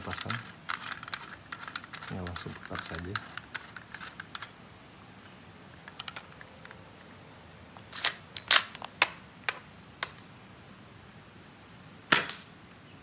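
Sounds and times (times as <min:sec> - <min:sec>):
metal clacks of pistol slide: 0:00.1 - 0:04.5, 0:07.8 - 0:08.9.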